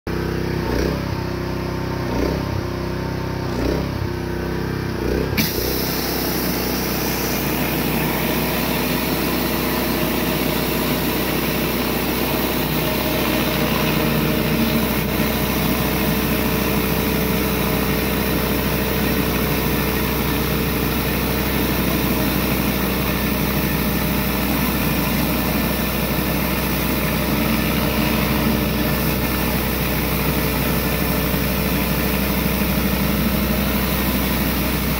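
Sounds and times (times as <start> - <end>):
pressure washer engine running: 0.1 - 34.9
water spray hissing on concrete: 5.4 - 12.8.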